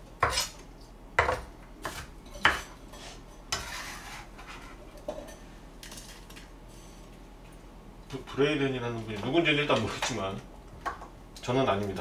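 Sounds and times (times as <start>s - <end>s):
knife scraping across board: 0.2s - 0.6s, 1.8s - 4.8s.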